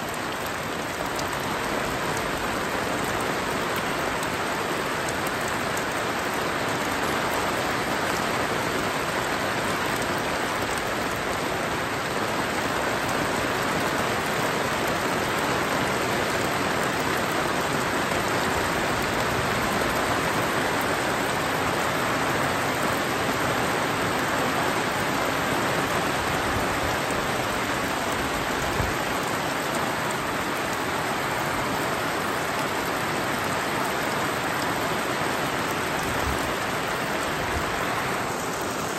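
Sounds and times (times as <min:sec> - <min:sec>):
heavy rain on fabric awning: 0:00.0 - 0:38.9
water pouring off awning: 0:25.0 - 0:38.9.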